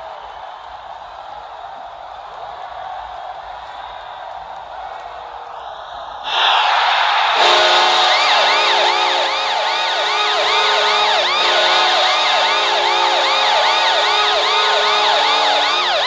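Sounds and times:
crowd noise: 0.0 - 16.0
multi-tone air horn: 7.4 - 16.0
whooping siren: 7.4 - 16.0.

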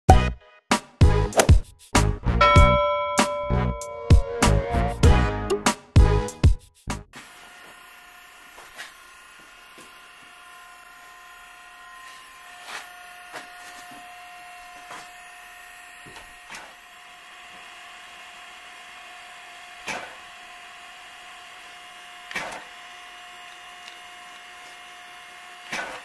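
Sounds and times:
pneumatic tire buffer whining: 7.1 - 26.0.

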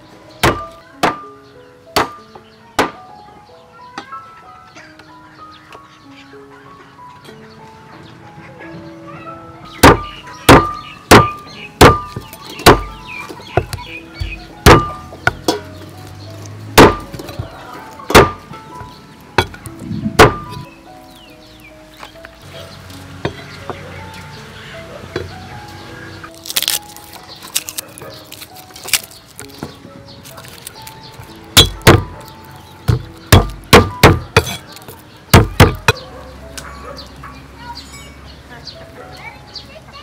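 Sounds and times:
soft background music: 0.0 - 40.0
cleaver chopping meat on wood: 0.4 - 1.3, 2.0 - 3.0, 9.8 - 15.8, 16.6 - 18.6, 19.4 - 20.7, 31.5 - 36.0.

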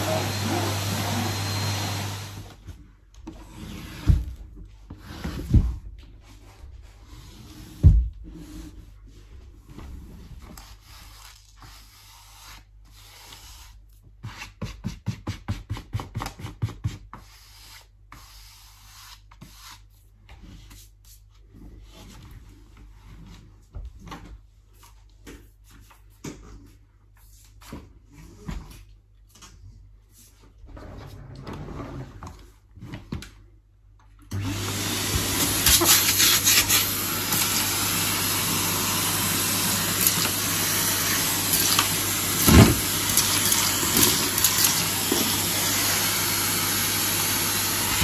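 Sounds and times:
rubbing and scraping: 35.3 - 38.3.

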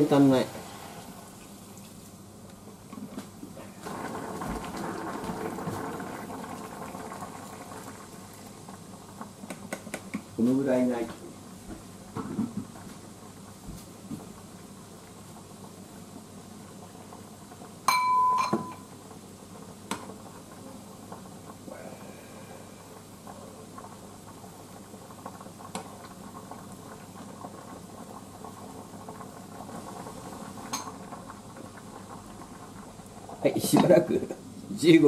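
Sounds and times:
pot simmering hiss: 0.0 - 35.0
short ringing tone: 17.9 - 18.9.

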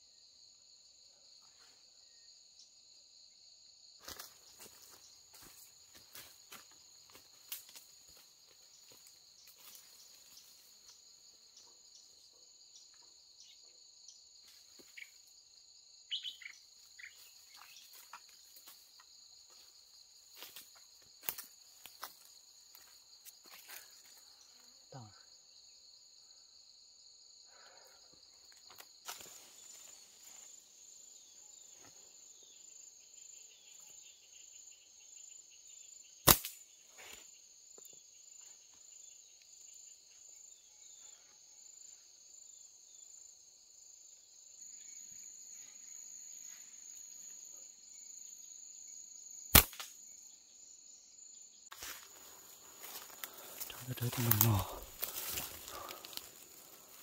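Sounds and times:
insects buzzing: 0.0 - 57.0
slingshot snapping: 36.2 - 36.6, 49.5 - 50.0.

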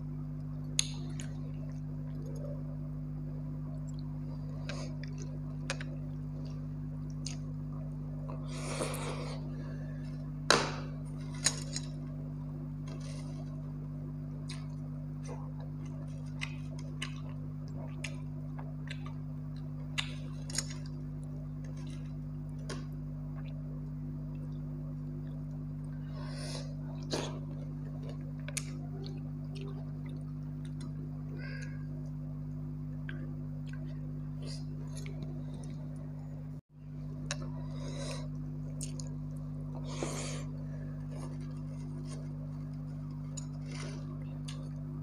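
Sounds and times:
low hum: 0.0 - 45.0
chewing: 14.4 - 23.6, 37.3 - 44.9.

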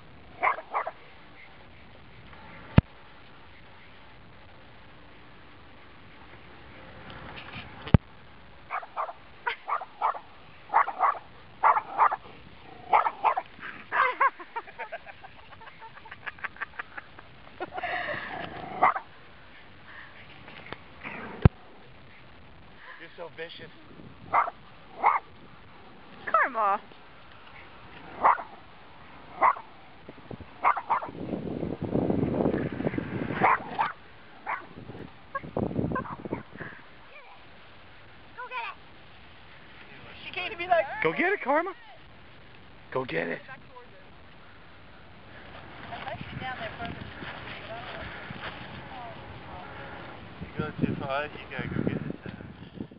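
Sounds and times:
small dog barking: 0.4 - 1.0, 8.7 - 12.2, 12.8 - 14.3, 18.7 - 19.1, 24.3 - 25.3, 28.2 - 28.6, 29.3 - 29.7, 30.6 - 31.2, 33.4 - 34.7
rough noise: 18.0 - 40.6.

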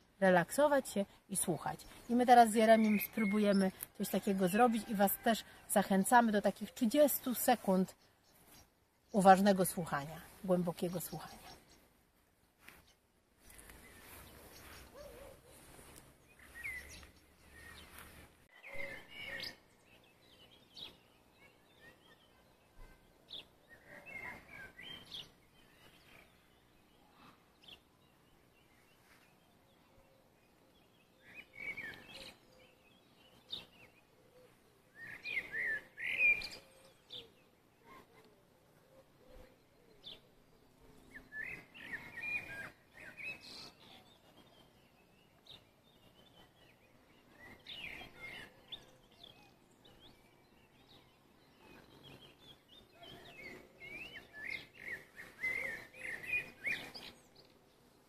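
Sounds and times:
faint wind: 0.0 - 58.0
songbirds singing: 0.0 - 58.0.

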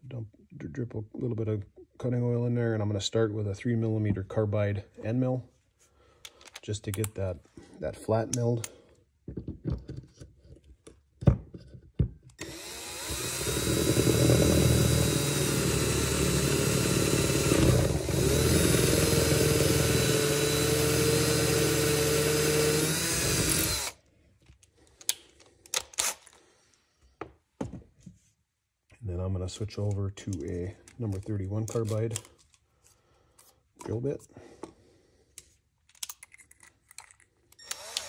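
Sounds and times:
power drill milling: 12.4 - 24.0, 37.6 - 38.0.

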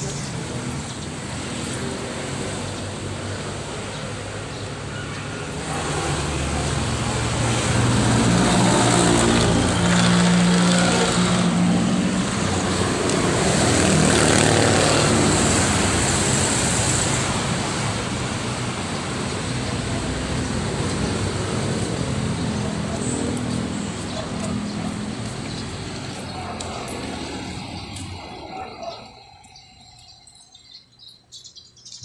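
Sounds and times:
vehicle engine hum: 5.1 - 30.7
vehicle tyre noise: 5.6 - 29.3.

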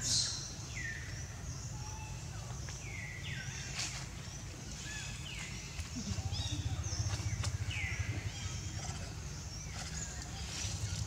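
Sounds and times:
steady low rumble: 2.3 - 11.0.

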